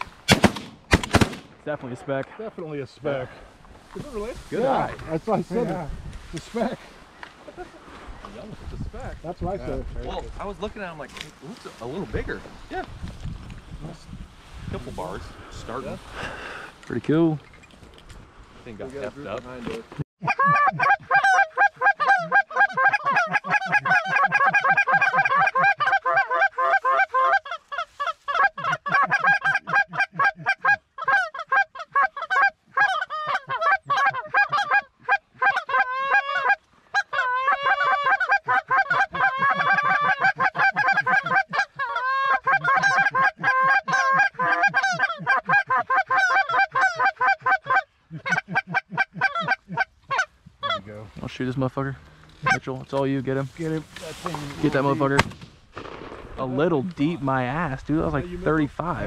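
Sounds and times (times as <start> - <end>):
goose cackling calls: 20.2 - 50.9, 52.4 - 52.7.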